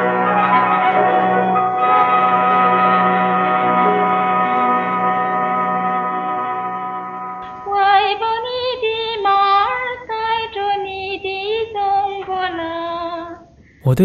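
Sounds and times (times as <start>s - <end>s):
woman singing with vibrato: 7.6s - 13.4s.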